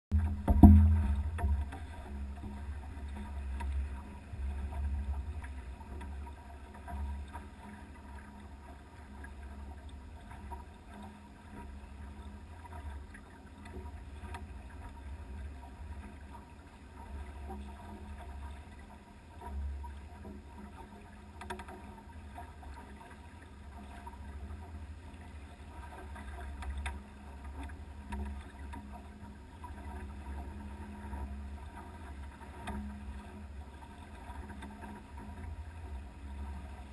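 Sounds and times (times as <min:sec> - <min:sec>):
water and wind around hull: 0:00.1 - 0:36.9.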